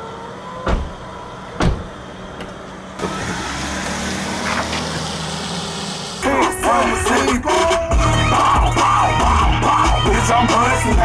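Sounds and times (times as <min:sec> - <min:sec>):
car engine and tyres on wet pavement: 0:00.0 - 0:07.5
car door slamming: 0:00.6 - 0:03.4.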